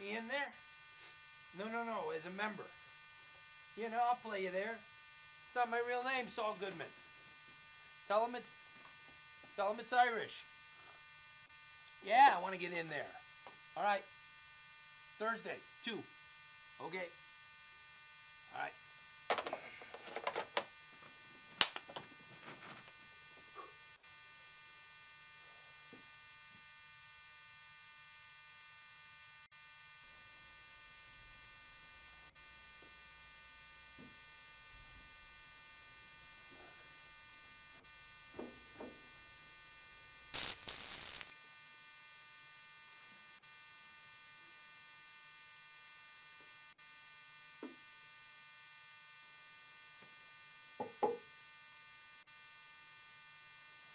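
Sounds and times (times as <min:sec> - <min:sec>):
electrical hum and buzz: 0:00.0 - 0:27.3, 0:30.1 - 0:41.3
loud high-pitched burst: 0:40.4 - 0:41.3.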